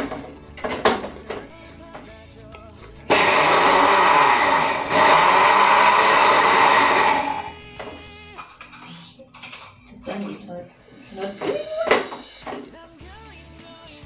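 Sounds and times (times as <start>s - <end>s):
blender grinding biscuits: 3.1s - 7.7s.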